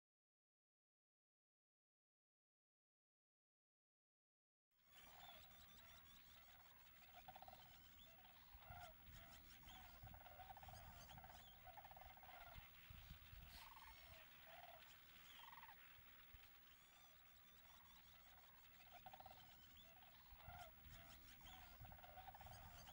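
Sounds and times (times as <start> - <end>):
blackbird flock chatter: 4.9 - 22.9
cranes rattling calls: 5.0 - 22.9.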